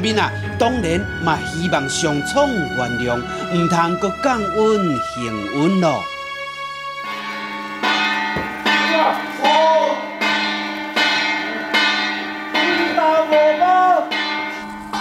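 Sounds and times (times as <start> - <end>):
bell ringing: 0.0 - 4.4, 7.1 - 15.0
man calling out: 8.9 - 10.1.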